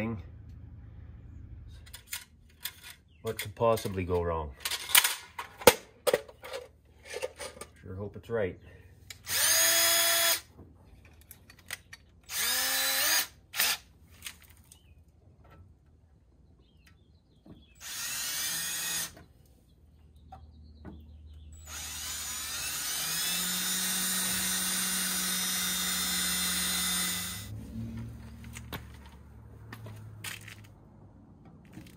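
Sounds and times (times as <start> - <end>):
cordless drill drilling metal: 9.2 - 10.5, 12.2 - 13.8, 17.8 - 19.2, 21.6 - 27.5.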